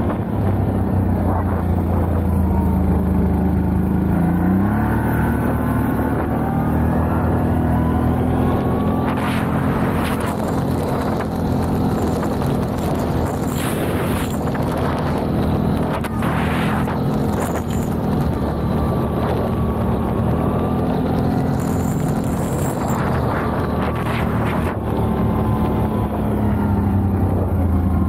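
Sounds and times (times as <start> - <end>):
quad engine running: 0.0 - 28.0.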